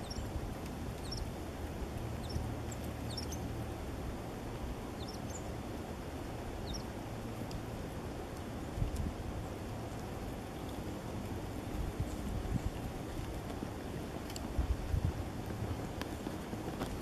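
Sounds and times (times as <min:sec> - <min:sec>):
songbirds chirping: 0:00.0 - 0:03.7, 0:04.8 - 0:05.6, 0:06.6 - 0:07.6.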